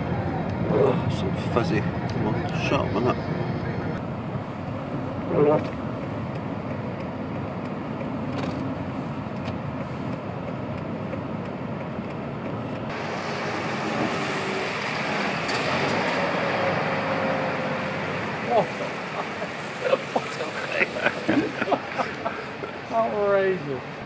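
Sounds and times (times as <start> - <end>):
road noise: 0.0 - 24.0
heavy lorry passing: 12.9 - 24.0.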